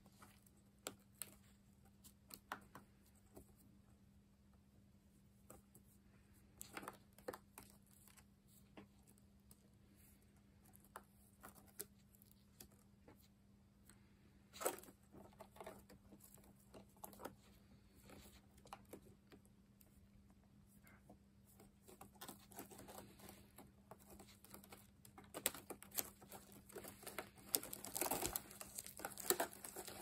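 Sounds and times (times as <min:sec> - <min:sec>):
low steady hum: 0:00.0 - 0:30.0
beetles scratching on cardboard: 0:21.9 - 0:30.0.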